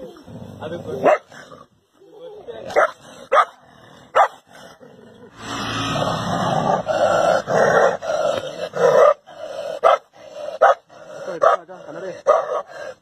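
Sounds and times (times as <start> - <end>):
dog growling and snarling: 0.0 - 1.8, 2.6 - 13.0
dog barking: 1.0 - 1.3, 2.7 - 4.4, 8.9 - 9.2, 9.8 - 10.8, 11.4 - 12.7.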